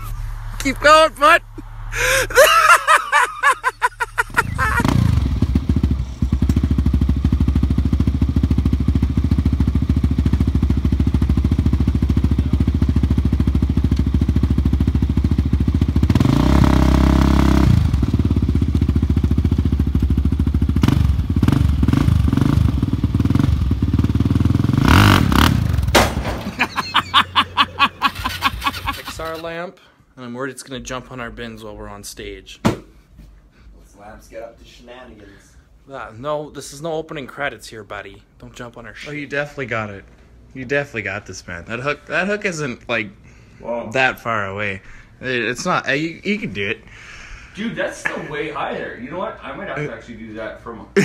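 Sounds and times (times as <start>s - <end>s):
quad engine idling and revving: 3.3s - 26.0s, 26.9s - 29.4s.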